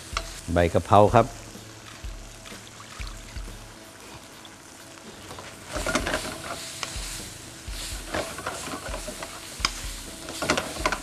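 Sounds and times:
oil sizzling: 0:00.0 - 0:11.0
wooden spatula scraping a wok: 0:05.3 - 0:11.0.

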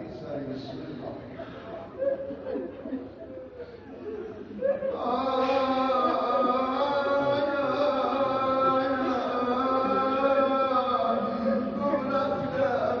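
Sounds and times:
man chanting: 0:04.9 - 0:13.0.

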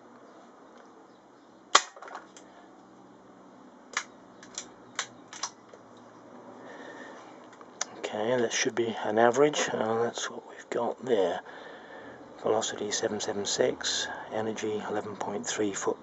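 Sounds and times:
air rifle shot: 0:01.8 - 0:02.0.

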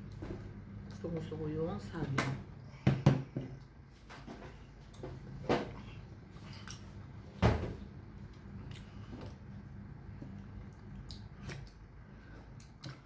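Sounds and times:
low steady hum: 0:00.0 - 0:13.0
person chewing: 0:06.4 - 0:07.1, 0:08.2 - 0:13.0.

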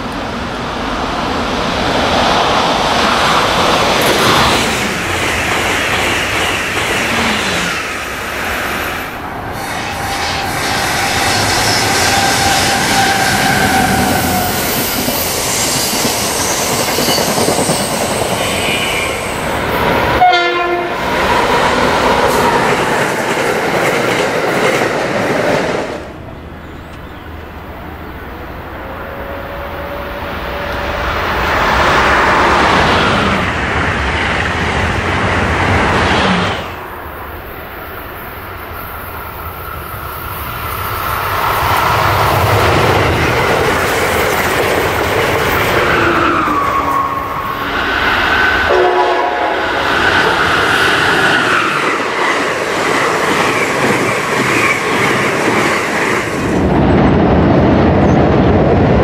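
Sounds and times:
train wheels rumbling on rail: 0:00.0 - 0:59.0
train horn: 0:20.2 - 0:21.1, 0:28.8 - 0:31.4, 0:48.6 - 0:49.9.

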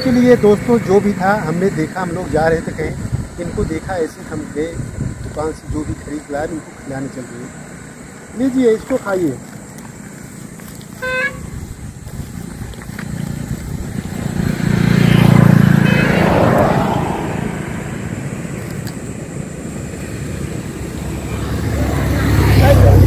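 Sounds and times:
vehicle passing: 0:06.1 - 0:23.0
short horn toot: 0:11.0 - 0:11.6, 0:15.8 - 0:16.7.

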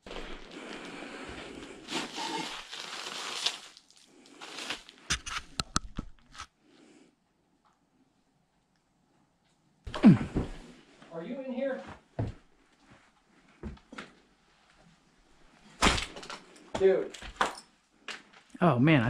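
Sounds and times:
newspapers rustling and crunching: 0:00.0 - 0:05.2.

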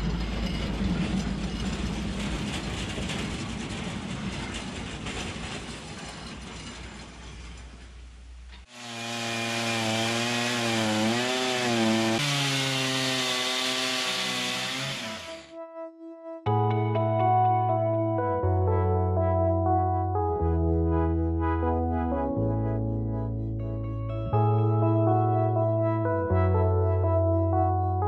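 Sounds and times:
bandsaw mill cutting log: 0:08.6 - 0:15.5
background music sustained notes: 0:15.4 - 0:28.0.

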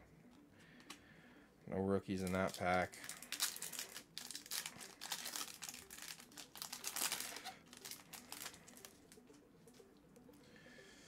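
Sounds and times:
foil wrapper crinkling: 0:02.1 - 0:09.1.

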